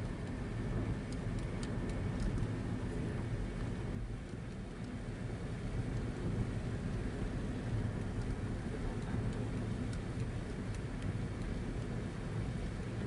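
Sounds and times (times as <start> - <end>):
car rumble on wet road: 0.0 - 13.0
raindrops ticking on windscreen: 0.0 - 13.0.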